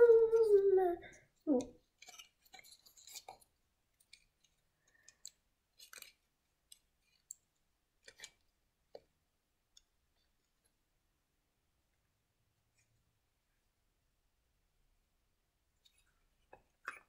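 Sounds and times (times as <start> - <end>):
small plastic parts clicking: 1.5 - 9.1.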